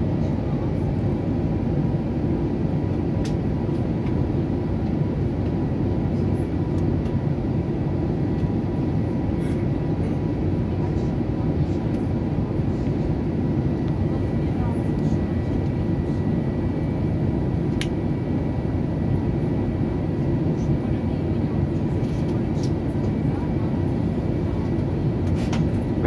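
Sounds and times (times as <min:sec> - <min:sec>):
airliner cabin engine and airflow noise: 0:00.0 - 0:26.0.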